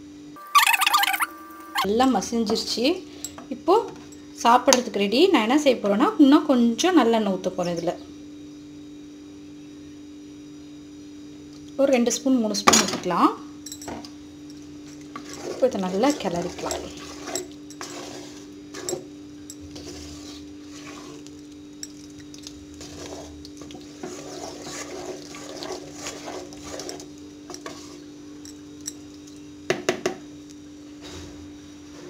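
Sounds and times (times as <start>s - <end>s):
wooden spoon stirring thick mash: 15.1s - 19.0s, 19.7s - 21.4s, 22.2s - 28.0s.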